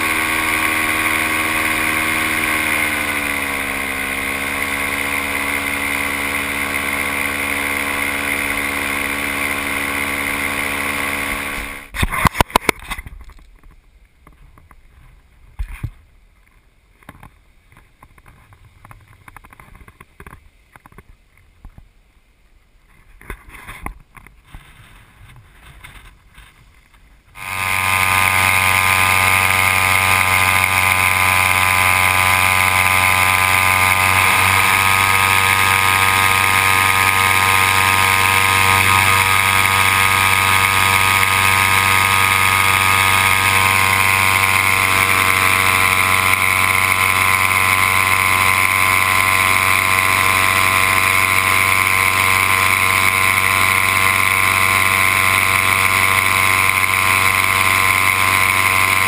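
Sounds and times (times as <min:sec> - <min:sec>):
paramotor engine drone: 0:00.0 - 0:12.8, 0:27.4 - 0:59.0.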